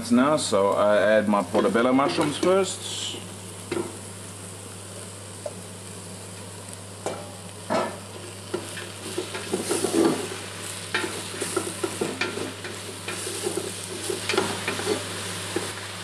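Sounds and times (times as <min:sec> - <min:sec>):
mushrooms sizzling in a pot: 0:00.0 - 0:16.0
wooden spoon scraping a pot: 0:11.2 - 0:15.1.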